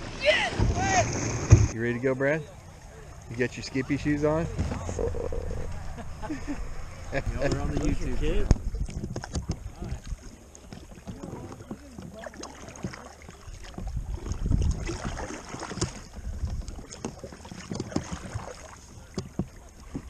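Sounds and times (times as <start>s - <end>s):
paddle splashing in water: 0.0s - 1.9s, 2.6s - 20.0s
water sloshing against hull: 0.0s - 20.0s.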